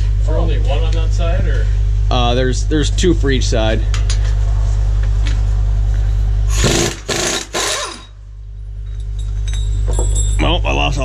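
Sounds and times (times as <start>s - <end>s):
steady low hum: 0.0s - 11.0s
impact wrench hammering: 6.5s - 8.2s.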